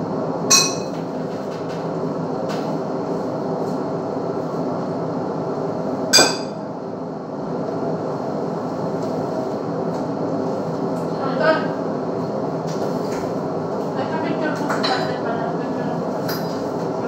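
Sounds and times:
steady hum: 0:00.0 - 0:17.0
utensils clinking on plates: 0:00.5 - 0:01.1.

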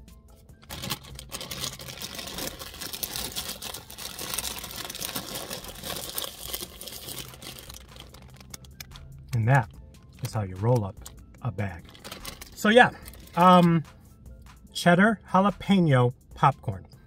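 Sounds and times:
snack bag crinkling: 0:00.6 - 0:09.0, 0:11.8 - 0:13.6.

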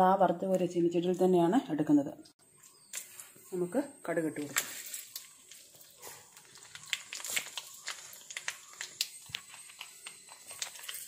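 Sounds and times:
oil frying with sharp pops: 0:04.4 - 0:11.0.

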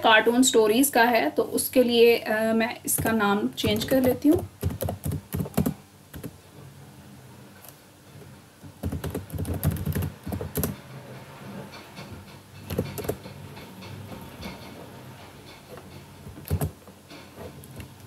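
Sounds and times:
typing on keyboard: 0:03.0 - 0:06.4, 0:08.8 - 0:10.8, 0:12.7 - 0:13.2, 0:16.5 - 0:16.7.

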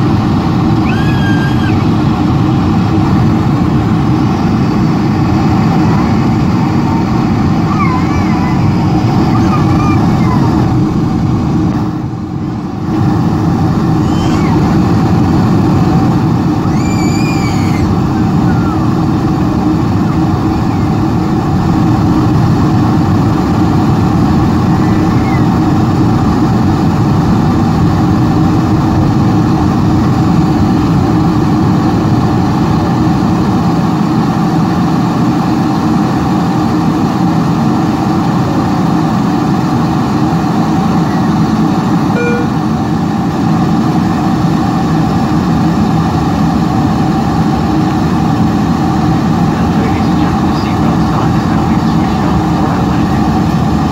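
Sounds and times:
air rushing over airframe: 0:00.0 - 0:53.9
airliner engines: 0:00.0 - 0:53.9
low hum: 0:00.0 - 0:53.9.

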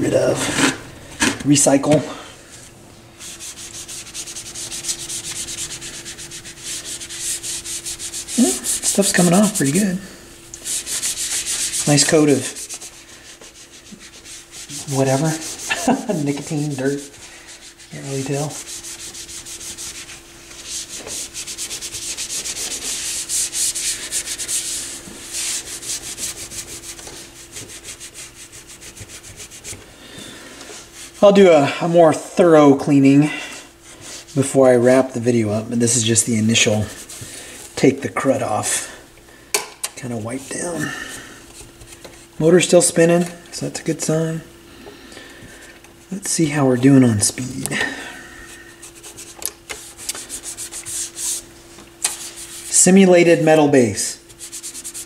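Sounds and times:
faint steady hum: 0:00.0 - 0:55.0
cloth rubbing back and forth: 0:02.5 - 0:29.9, 0:30.8 - 0:31.5, 0:35.8 - 0:37.8, 0:48.4 - 0:53.0, 0:54.2 - 0:55.0.

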